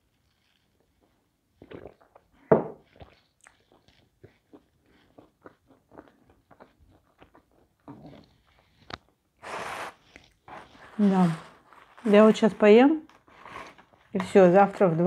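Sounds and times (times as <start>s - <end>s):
person chewing food: 0.0s - 11.0s.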